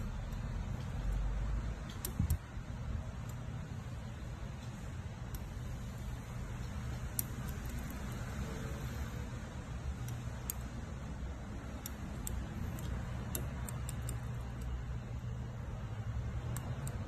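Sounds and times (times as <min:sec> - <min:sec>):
lock pick ticking in padlock: 0:00.0 - 0:02.5, 0:06.6 - 0:08.2, 0:09.9 - 0:10.8, 0:11.6 - 0:15.4, 0:16.2 - 0:17.0
low background hum: 0:00.0 - 0:17.0.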